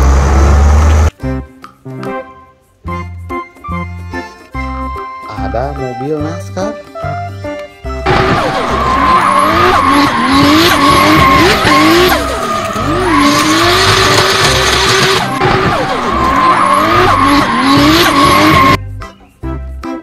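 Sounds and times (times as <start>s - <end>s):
race car engine revving: 8.1s - 18.8s
tyres squealing: 8.1s - 18.8s.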